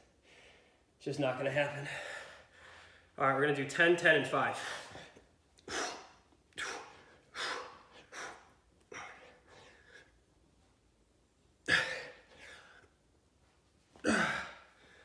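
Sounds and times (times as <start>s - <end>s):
man breathing hard: 0.1s - 1.0s, 1.7s - 3.2s, 4.5s - 10.4s.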